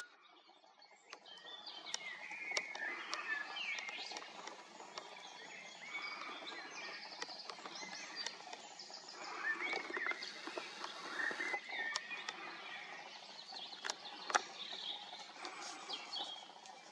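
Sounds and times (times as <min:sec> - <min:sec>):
birds chirping and calling: 0:00.0 - 0:16.9
sharp clicks: 0:01.1 - 0:05.2.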